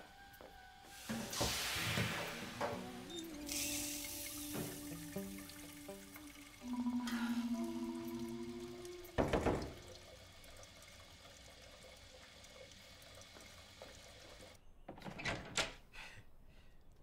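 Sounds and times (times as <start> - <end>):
held music note: 2.2 - 9.2.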